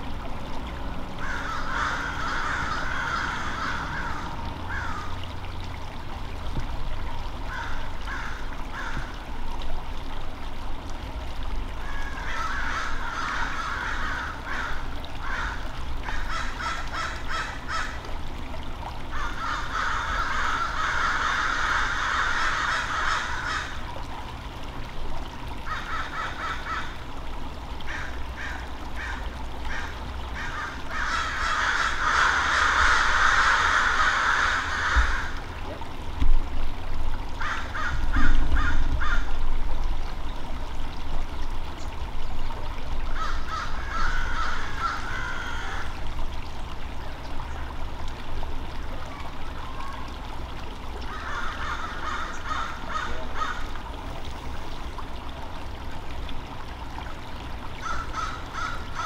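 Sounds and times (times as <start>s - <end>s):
low steady rumble: 0.0s - 59.0s
birds harsh repeated calls: 1.2s - 5.1s, 11.8s - 18.0s, 19.1s - 23.8s, 25.7s - 27.0s, 27.9s - 35.4s, 43.2s - 45.9s, 51.0s - 53.7s, 57.8s - 59.0s.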